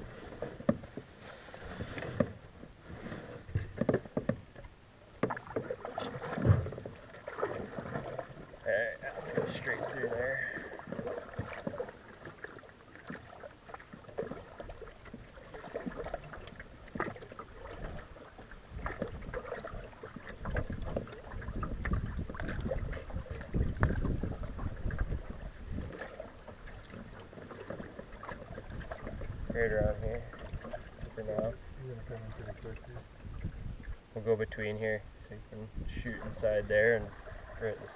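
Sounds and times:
paddle dipping in water: 0.0s - 34.6s, 35.7s - 37.9s
water lapping at hull: 0.0s - 37.9s
small knocks: 3.5s - 5.7s
wind rumble on microphone: 16.9s - 27.2s, 27.8s - 37.9s.

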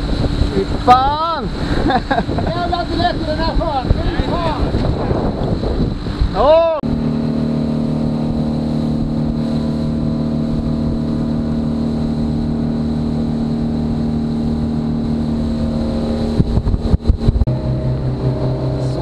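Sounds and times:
hull rushing through water: 0.0s - 19.0s
motorboat engine drone: 0.0s - 19.0s.

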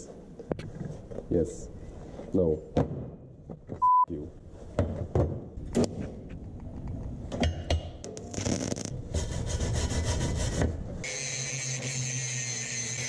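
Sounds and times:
angle grinder grinding: 11.0s - 13.0s.

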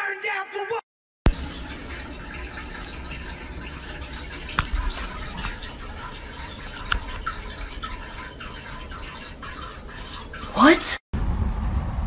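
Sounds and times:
cat lapping water: 1.3s - 10.9s.

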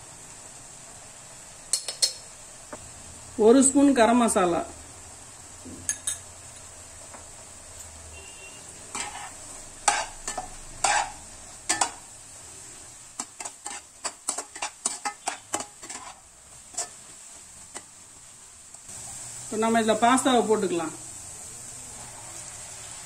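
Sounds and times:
egg sizzling: 4.6s - 23.0s
metal spatula scraping a pan: 8.2s - 12.1s, 12.7s - 18.0s.

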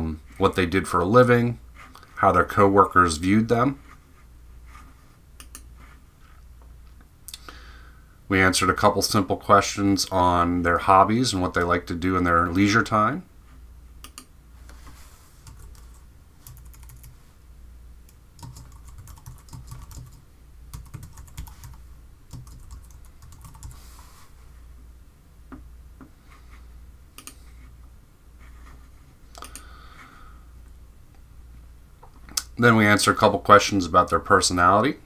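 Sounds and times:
faint low hum: 0.0s - 35.0s
typing on a keyboard: 15.5s - 17.1s, 18.4s - 23.8s.

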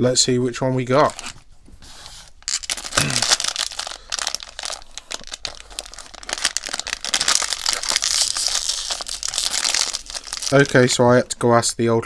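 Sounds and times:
foil bag crinkling: 2.4s - 11.0s.

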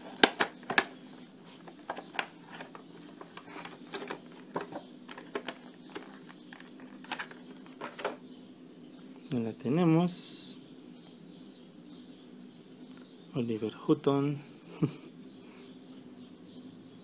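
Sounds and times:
packaging clicks and crackles: 0.0s - 1.0s, 1.6s - 8.2s.

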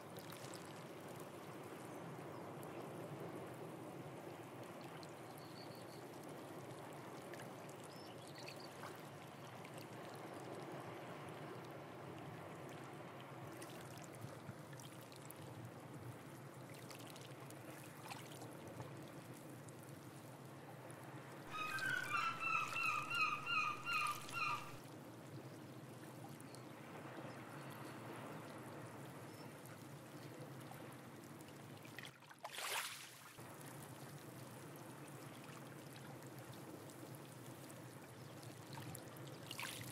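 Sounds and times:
seawater trickling among rocks: 13.4s - 22.1s, 27.7s - 39.9s
bird calling short notes: 21.5s - 24.8s.

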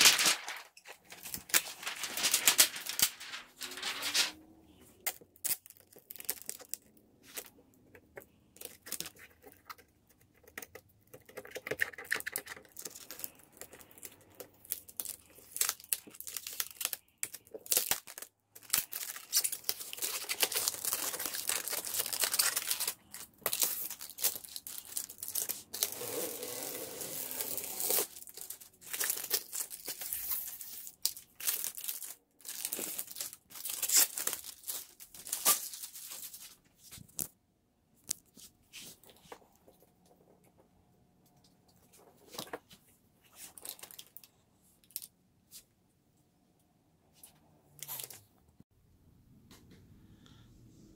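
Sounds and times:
plastic film peeling and crinkling: 0.0s - 4.4s, 12.6s - 37.3s.

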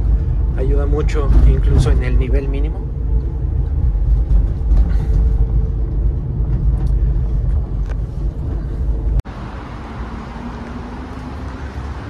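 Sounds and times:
engine and road rumble: 0.0s - 12.0s.

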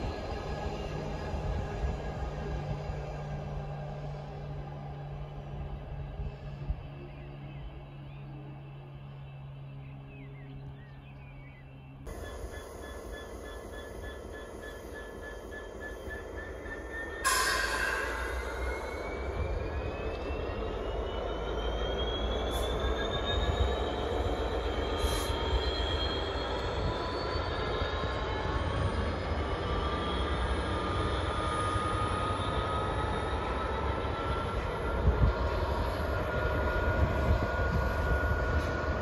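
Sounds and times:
freight train rolling rumble: 0.0s - 11.0s, 12.1s - 39.0s.

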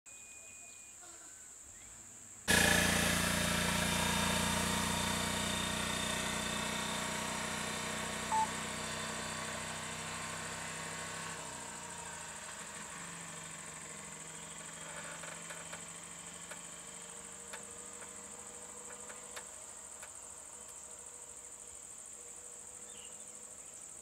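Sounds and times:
brief beep: 0.1s - 0.9s, 8.3s - 8.5s
vehicle engine idling: 2.5s - 23.6s
high insect drone: 11.7s - 24.0s.

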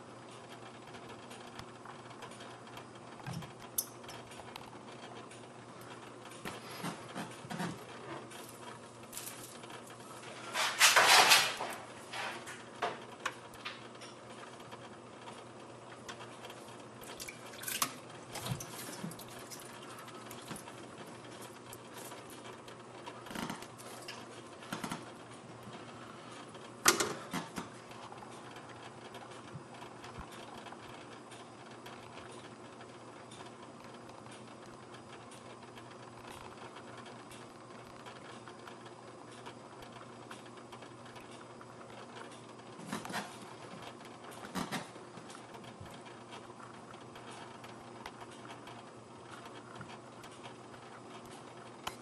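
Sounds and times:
aquarium filter humming: 0.0s - 52.0s.

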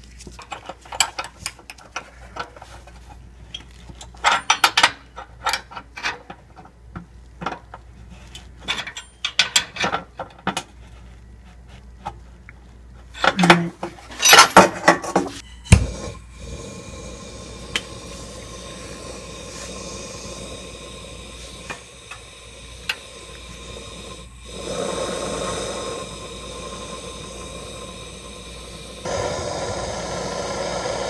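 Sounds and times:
gas torch hissing: 15.7s - 31.0s.

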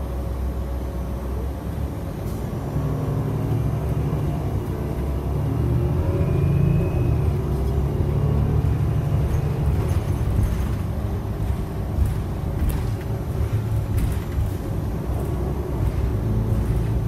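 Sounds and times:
bus engine and road rumble: 0.0s - 17.0s.

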